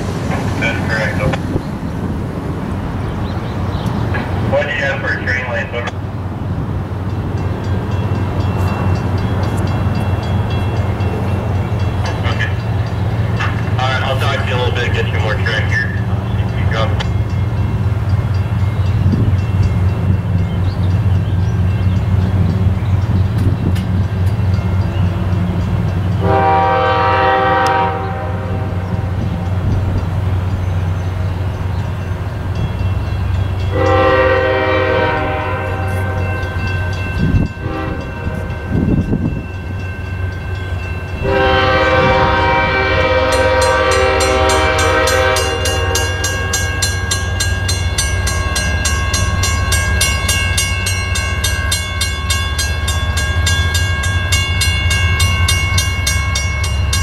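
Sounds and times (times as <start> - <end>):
locomotive air horn: 26.2 - 29.1, 33.7 - 36.4, 37.6 - 38.7, 41.2 - 46.6.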